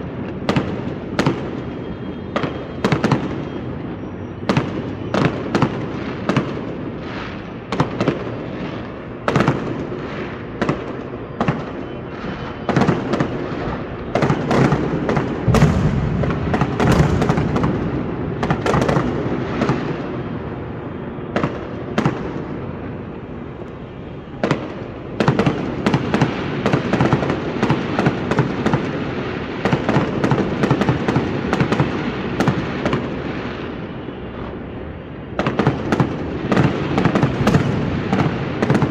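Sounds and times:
fireworks crackle and bangs: 0.0s - 38.9s.

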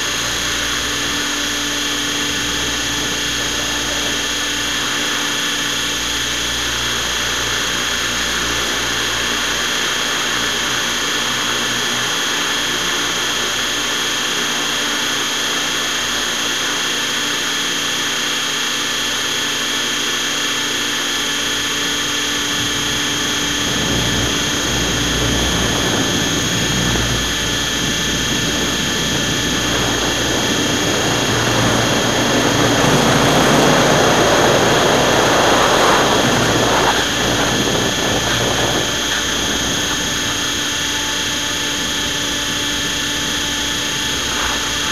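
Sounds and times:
helicopter motor whine: 0.0s - 44.9s
rotor rushing noise: 21.2s - 44.9s.

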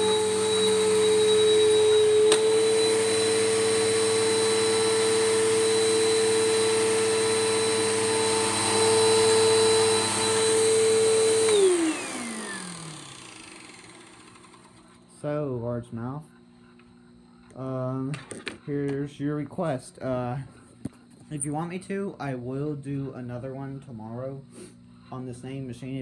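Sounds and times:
vacuum cleaner motor whine: 0.0s - 17.8s.

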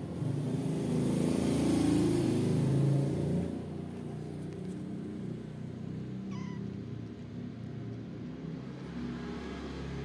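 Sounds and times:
kitten mewing: 6.2s - 7.0s.

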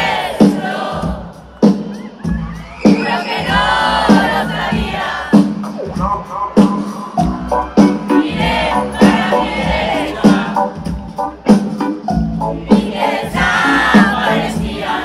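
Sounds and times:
crowd voices: 0.0s - 15.0s
heavy drum beat: 0.0s - 15.0s
live rock band playing: 0.0s - 15.0s.

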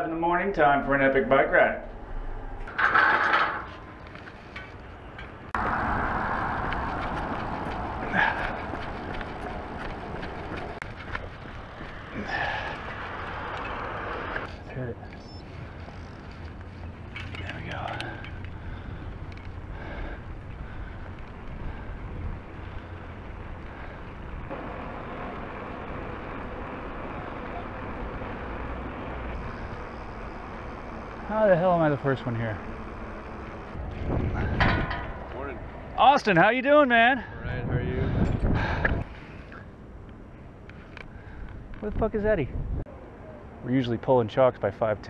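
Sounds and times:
wind and road noise on microphone: 0.0s - 45.0s
bicycle rolling rumble: 1.8s - 36.0s
wind on microphone: 33.8s - 35.2s, 37.3s - 39.2s, 42.5s - 42.9s.

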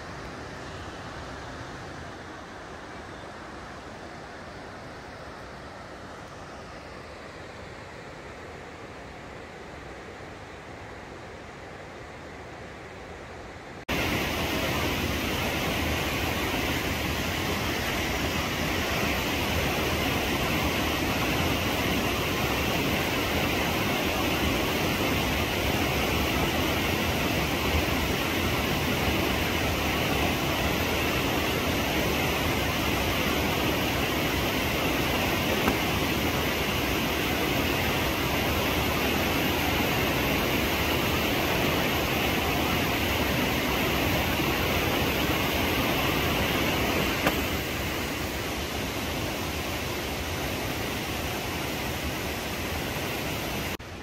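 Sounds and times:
stream rushing over rocks: 13.9s - 54.0s.

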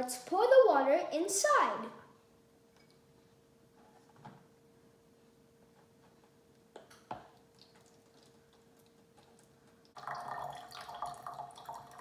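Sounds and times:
water pouring into plastic bottle: 10.0s - 12.0s.

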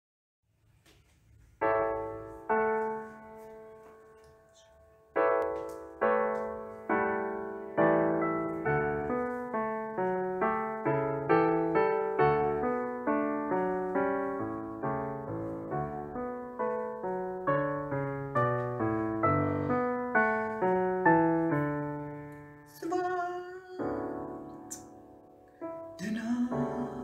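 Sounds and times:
solo piano playing: 1.4s - 27.0s.

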